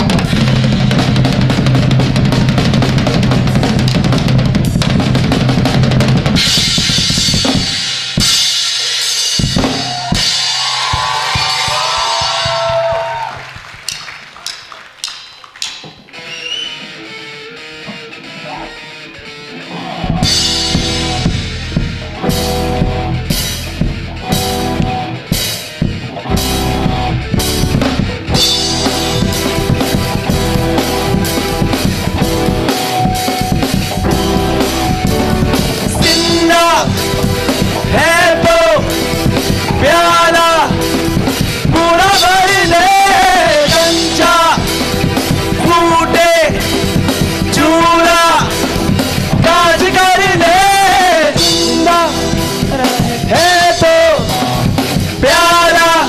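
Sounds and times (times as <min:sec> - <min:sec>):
electric guitars: 0:00.0 - 0:13.4, 0:15.8 - 0:56.0
live rock band playing: 0:00.0 - 0:56.0
person singing: 0:34.0 - 0:46.8, 0:47.4 - 0:56.0.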